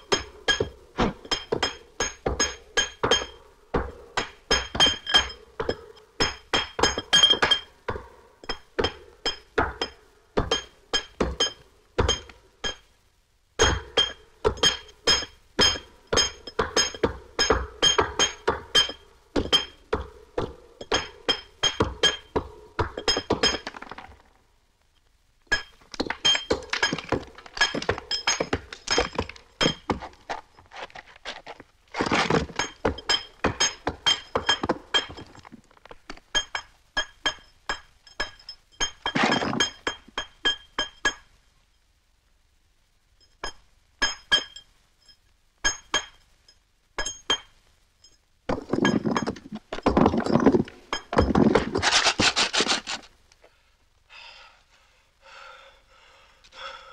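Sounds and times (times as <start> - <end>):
mallet and chisel striking stone: 0.0 - 12.9, 13.6 - 24.0, 25.5 - 30.2, 32.3 - 35.5, 36.3 - 41.3, 43.4 - 44.7, 45.6 - 46.2, 47.0 - 52.9.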